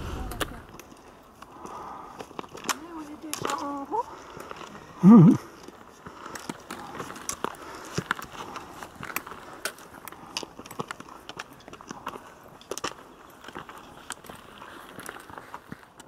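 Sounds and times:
footsteps on stony trail: 0:00.0 - 0:16.0
trekking poles clicking on rock: 0:00.2 - 0:16.0.

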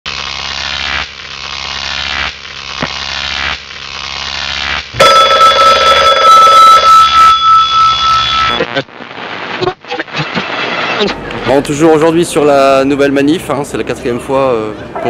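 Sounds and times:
camera motor whir: 0:00.1 - 0:05.0
buzzing ringing pulses: 0:00.1 - 0:08.7.

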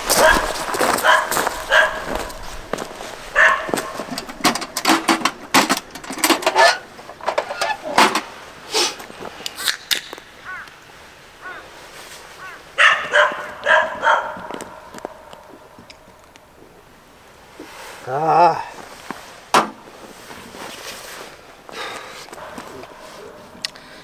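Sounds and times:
short animal barks: 0:00.1 - 0:02.1, 0:03.3 - 0:04.0, 0:12.4 - 0:14.5
sharp clicks and knocks: 0:03.8 - 0:08.3.

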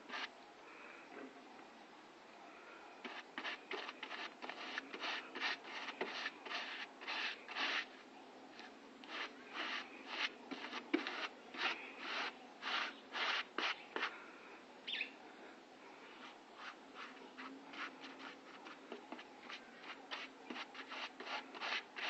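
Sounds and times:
hand tool scraping a surface: 0:03.1 - 0:07.9, 0:09.1 - 0:14.1, 0:16.6 - 0:22.0.

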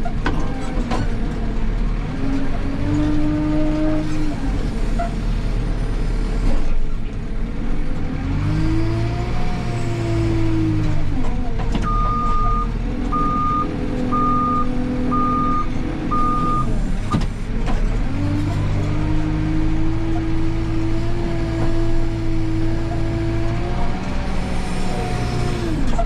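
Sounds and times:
diesel engine idling and revving: 0:00.0 - 0:26.0
reversing alarm beeping: 0:11.9 - 0:16.7.

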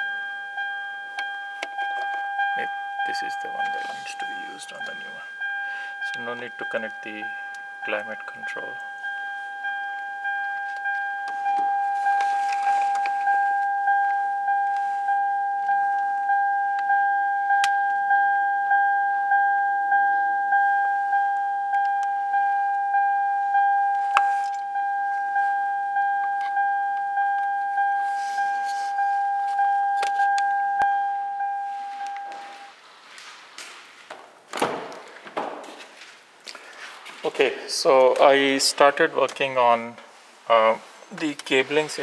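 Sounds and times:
car warning chime dinging: 0:00.0 - 0:32.8.

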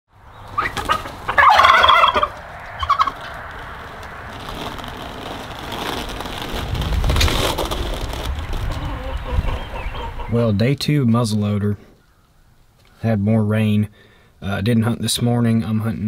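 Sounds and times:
turkey gobbling: 0:00.6 - 0:03.5, 0:08.7 - 0:10.4
low rumble: 0:02.0 - 0:10.6.

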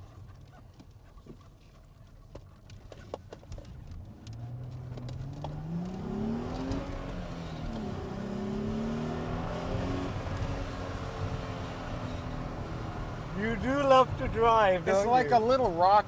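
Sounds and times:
car engine revving: 0:04.0 - 0:15.4.

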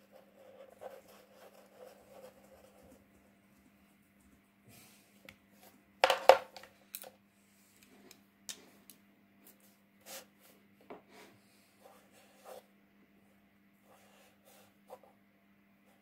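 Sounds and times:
marker scratching on paper: 0:00.0 - 0:02.9.

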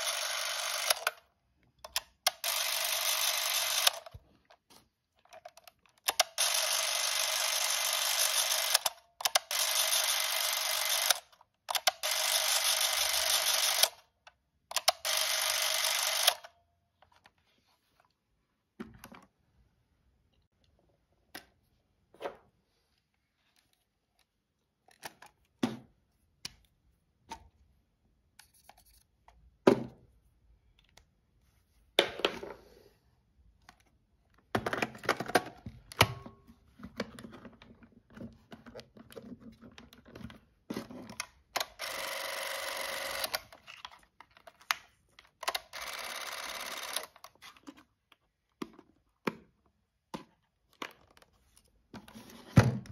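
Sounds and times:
movie camera whirring: 0:00.0 - 0:01.2, 0:02.0 - 0:04.2, 0:06.1 - 0:14.1, 0:14.7 - 0:16.5, 0:41.2 - 0:43.8, 0:45.4 - 0:47.4.

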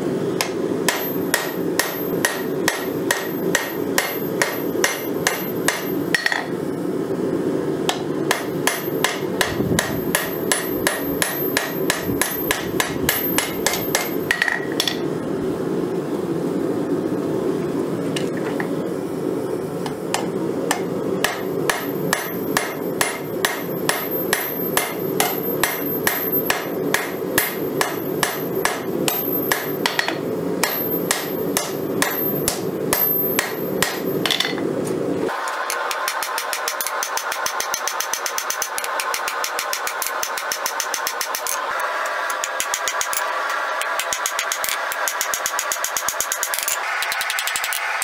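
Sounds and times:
high hum with light taps: 0:00.0 - 0:06.7, 0:07.8 - 0:15.4, 0:16.8 - 0:47.9
hammer ringing on anvil: 0:00.9 - 0:06.5, 0:07.9 - 0:15.0, 0:20.1 - 0:34.6.

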